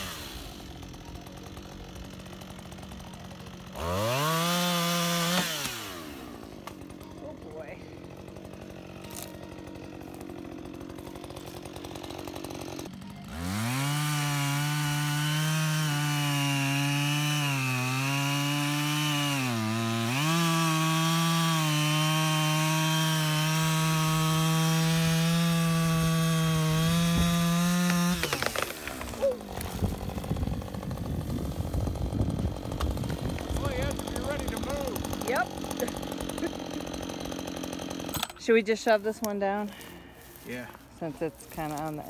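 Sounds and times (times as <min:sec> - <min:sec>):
chainsaw cutting wood: 0:00.0 - 0:42.0
stump tumbling with thuds: 0:27.0 - 0:32.0.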